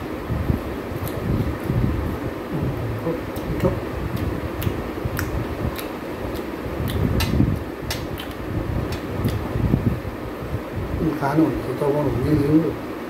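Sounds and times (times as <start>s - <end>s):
steady low hum: 0.0s - 13.0s
person chewing food: 0.9s - 9.5s
wet mouth smacks: 3.3s - 9.4s.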